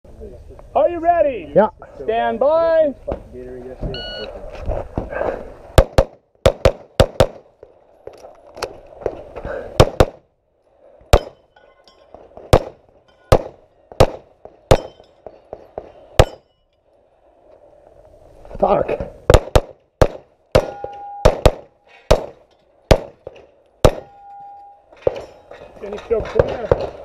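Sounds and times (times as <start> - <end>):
pistol shots: 5.8 - 7.4, 9.8 - 10.2, 12.5 - 14.9, 19.3 - 24.1
metallic ringing of steel plates: 11.2 - 12.3, 13.0 - 13.4, 20.6 - 22.8, 24.0 - 26.6.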